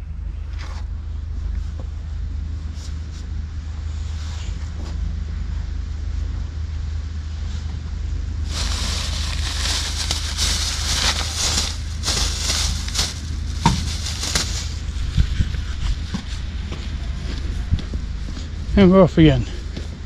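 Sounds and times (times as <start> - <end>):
steady low rumble: 0.0 - 20.0
cloth rustling: 8.5 - 15.0.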